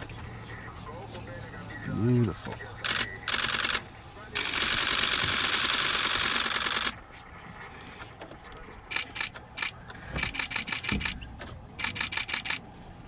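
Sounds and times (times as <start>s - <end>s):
camera shutters clicking in bursts: 2.4s - 3.8s, 4.4s - 7.0s, 8.9s - 11.2s, 11.8s - 12.6s.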